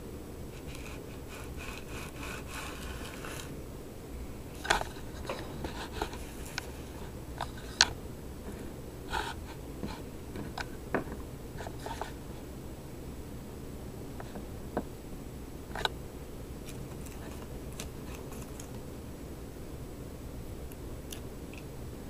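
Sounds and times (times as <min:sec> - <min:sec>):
metal rubbing on sandpaper: 0:00.6 - 0:03.6.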